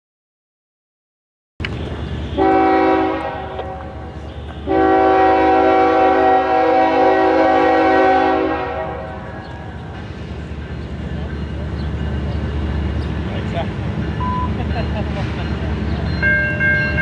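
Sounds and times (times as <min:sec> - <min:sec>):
train rumble: 0:01.6 - 0:17.0
locomotive air horn blasts: 0:02.0 - 0:09.5.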